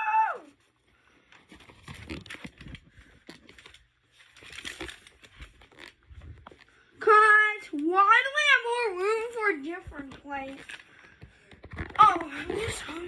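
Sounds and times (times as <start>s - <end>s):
phone handling rustling: 10.0s - 12.0s.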